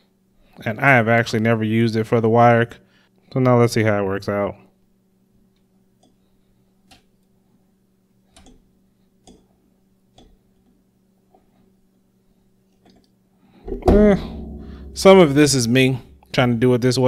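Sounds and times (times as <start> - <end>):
low steady hum: 0.0 - 17.0
man's voice: 13.9 - 17.0.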